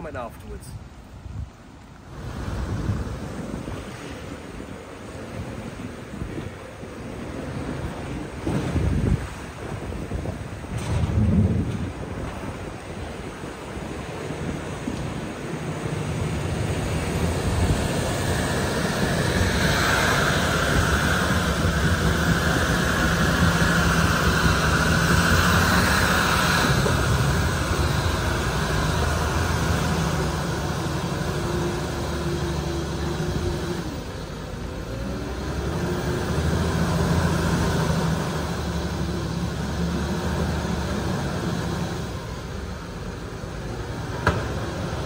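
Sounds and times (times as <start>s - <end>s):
tractor diesel engine under load: 0.0s - 45.0s
water rushing and splashing: 0.0s - 45.0s.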